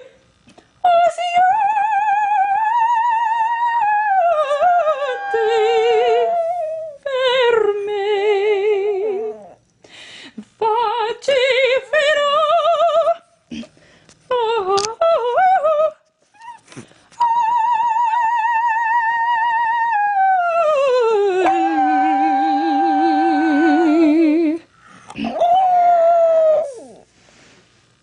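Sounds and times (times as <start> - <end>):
person singing operatically: 0.9 - 9.4, 17.2 - 24.6
dog howling: 3.3 - 7.1, 17.5 - 24.0, 25.2 - 27.1.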